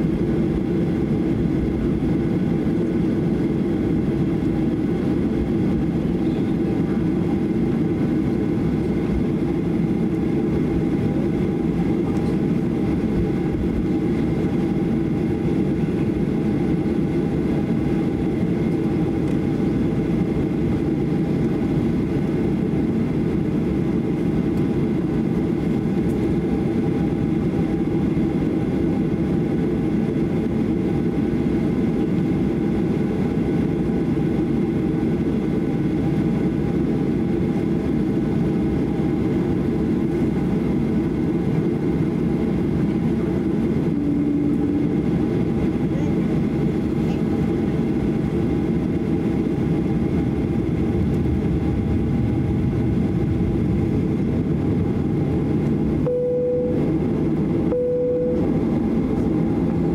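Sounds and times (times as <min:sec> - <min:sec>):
jet engines rumbling: 0:00.0 - 0:59.9
engine whining tones: 0:43.8 - 0:45.2.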